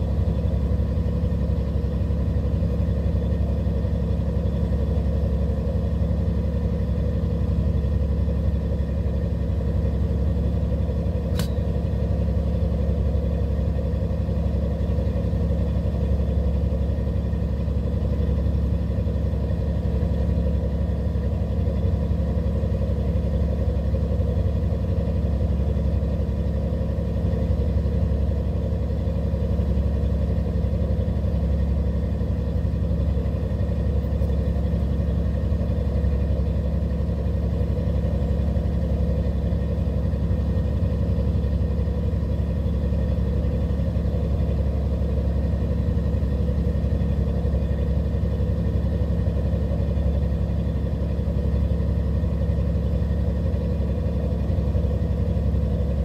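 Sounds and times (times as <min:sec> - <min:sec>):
sharp tick: 0:11.3 - 0:11.6
boat engine droning: 0:27.8 - 0:56.0.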